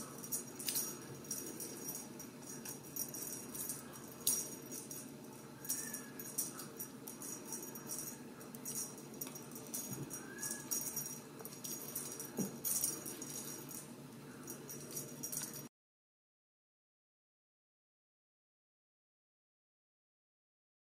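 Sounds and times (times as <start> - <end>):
cat wand toy rattling: 0.0 - 15.7.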